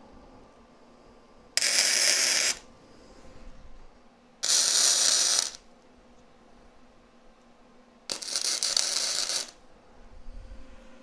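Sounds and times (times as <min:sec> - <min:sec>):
welding arc crackling: 0:01.6 - 0:02.6, 0:04.4 - 0:05.6, 0:08.1 - 0:09.6.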